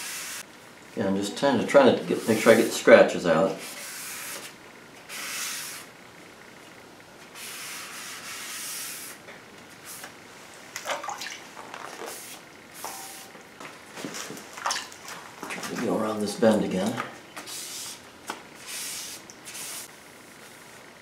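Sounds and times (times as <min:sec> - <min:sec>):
wet sanding strokes: 0:02.1 - 0:02.8.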